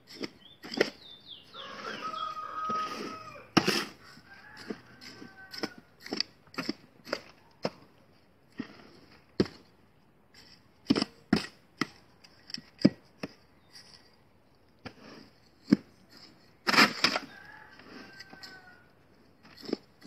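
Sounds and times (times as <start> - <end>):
hoe scraping in metal wheelbarrow: 0.0 - 7.9, 8.5 - 9.7, 14.8 - 20.0
hoe chopping soil: 0.0 - 9.8, 10.4 - 13.4, 14.8 - 18.8, 19.4 - 20.0.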